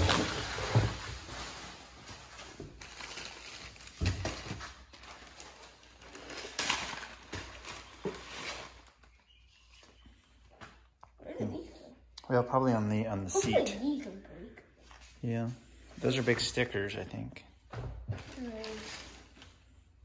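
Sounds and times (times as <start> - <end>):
plastic packaging crinkling: 0.0 - 9.3, 18.2 - 19.6.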